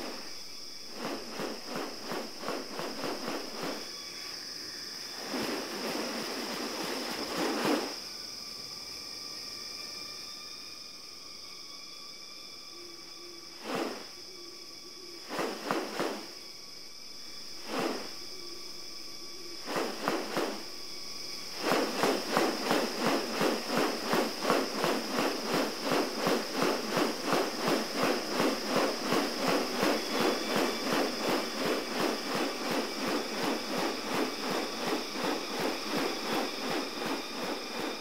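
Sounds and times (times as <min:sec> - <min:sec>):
bird rasping pulses: 0:00.0 - 0:03.9, 0:13.5 - 0:14.2, 0:15.2 - 0:16.4, 0:17.6 - 0:18.6, 0:19.5 - 0:20.8, 0:21.5 - 0:38.0
high insect whine: 0:00.0 - 0:38.0.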